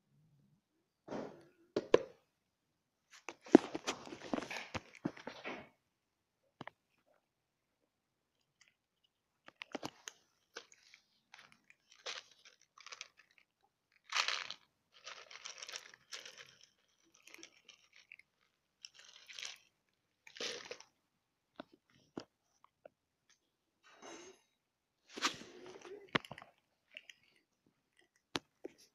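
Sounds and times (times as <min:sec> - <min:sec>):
cats crunching dry kibble: 0:03.2 - 0:05.3, 0:08.4 - 0:21.0, 0:25.1 - 0:28.9.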